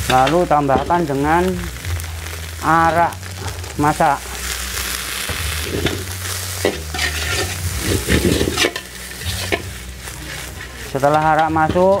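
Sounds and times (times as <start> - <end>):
food sizzling in wok: 0.0 - 12.0
metal ladle scraping wok: 4.2 - 12.0.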